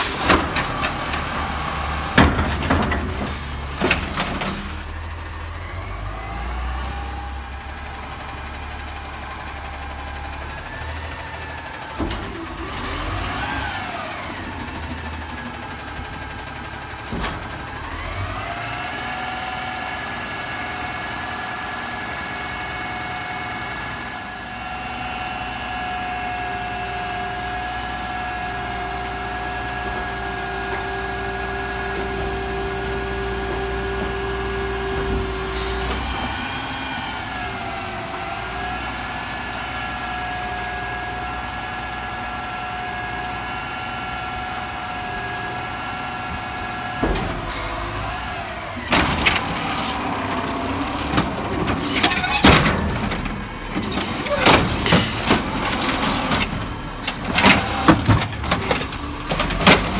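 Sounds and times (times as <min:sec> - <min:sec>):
clunks from arm and cart: 0:48.8 - 0:59.9.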